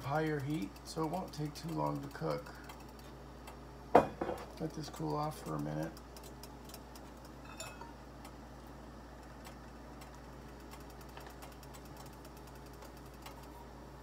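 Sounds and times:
faint clicking and ticking: 0:00.0 - 0:03.7, 0:04.5 - 0:07.6, 0:08.2 - 0:13.8
steady low hum: 0:00.0 - 0:14.0.

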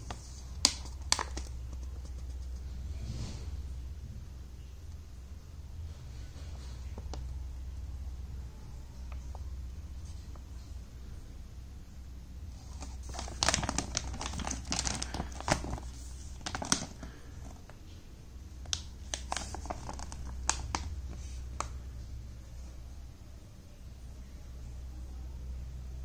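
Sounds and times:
plastic pouch crinkling: 0:00.0 - 0:02.4, 0:12.6 - 0:17.8, 0:18.6 - 0:21.7.

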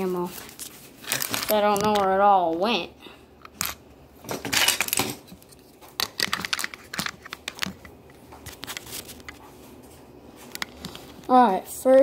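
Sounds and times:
objects clicking and rustling: 0:00.4 - 0:02.2, 0:03.4 - 0:09.6, 0:10.4 - 0:11.3.

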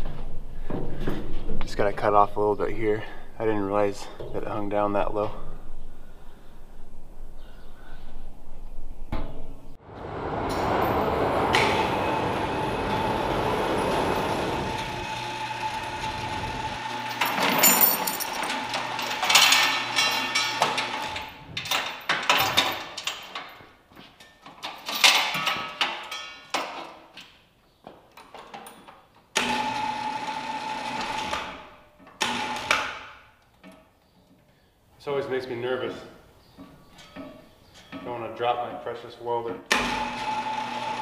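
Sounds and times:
chain hoist running: 0:16.8 - 0:23.2
chain rattling: 0:17.0 - 0:23.6
metal clanks: 0:17.1 - 0:23.6, 0:36.5 - 0:38.2.

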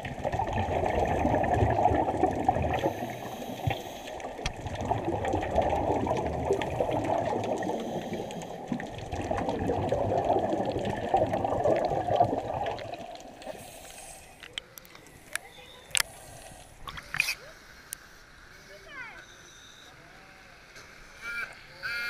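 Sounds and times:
underwater scuba bubbling: 0:00.0 - 0:17.3.

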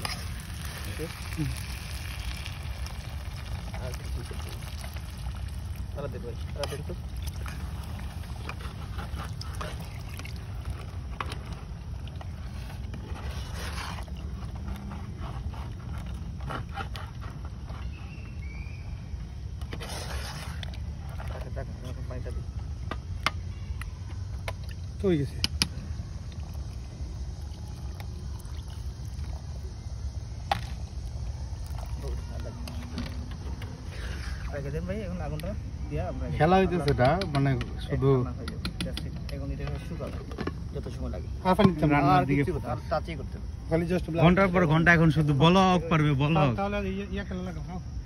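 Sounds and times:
water pouring into a pot: 0:00.0 - 0:14.4, 0:26.4 - 0:30.0, 0:31.0 - 0:32.8.

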